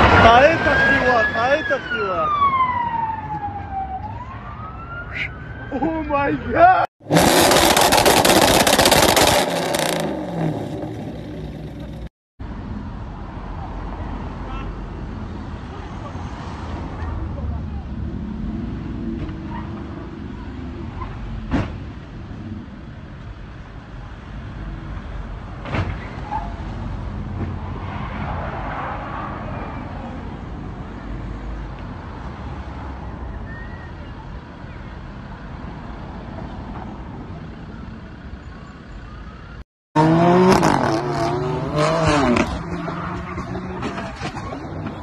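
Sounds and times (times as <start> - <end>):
traffic rumble: 0.0 - 45.0
car engine revving: 7.0 - 12.1, 40.0 - 45.0
exhaust crackling and popping: 7.0 - 12.1.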